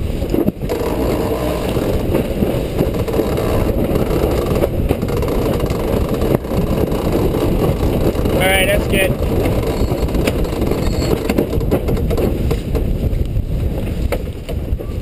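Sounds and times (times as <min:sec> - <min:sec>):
water running along hull: 0:00.0 - 0:13.0
wind buffeting microphone: 0:00.0 - 0:15.0.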